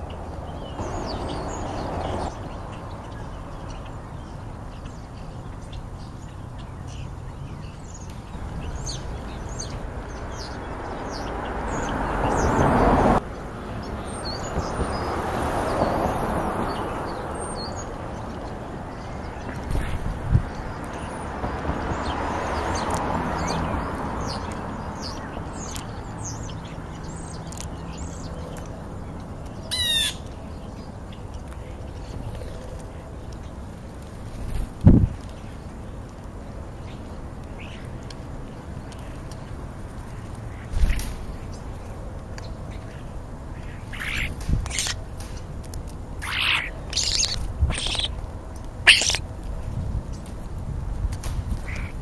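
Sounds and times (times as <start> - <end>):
starlings whistling and chirping: 43.8 - 45.0, 46.2 - 48.2, 48.9 - 49.3
harsh bird squawk: 43.9 - 45.0, 46.2 - 48.2, 48.8 - 49.3.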